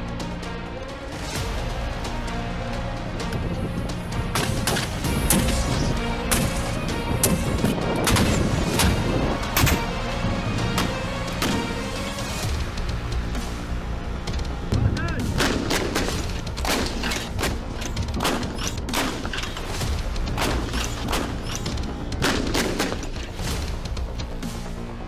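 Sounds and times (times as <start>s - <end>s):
background music: 0.0s - 25.0s
gunshots: 8.0s - 10.0s, 15.2s - 23.7s.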